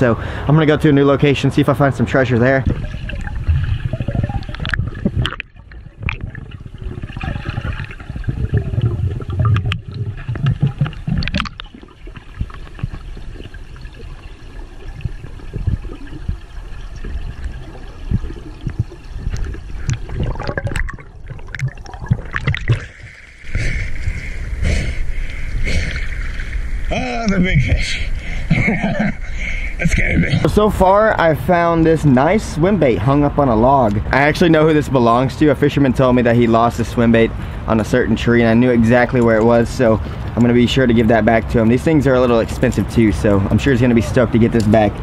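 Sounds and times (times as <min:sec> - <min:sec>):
muffled underwater river rush: 0:00.0 - 0:45.0
splashing water: 0:01.9 - 0:34.9
gurgling bubbles: 0:02.1 - 0:30.8.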